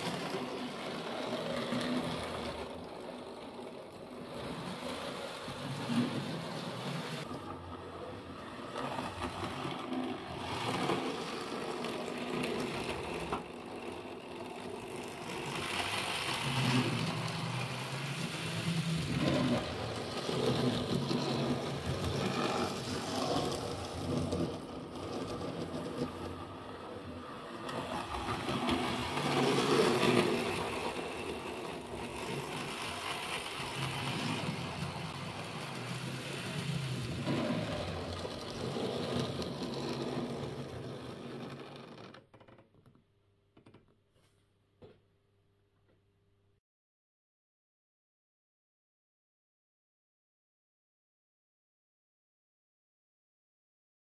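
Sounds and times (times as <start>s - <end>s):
model train wheels rattling: 0.0s - 7.3s, 8.6s - 42.2s.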